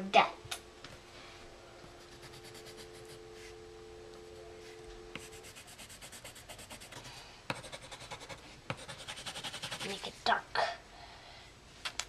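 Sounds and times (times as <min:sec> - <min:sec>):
pencil scribbling on paper: 0:02.0 - 0:03.5, 0:05.2 - 0:10.1.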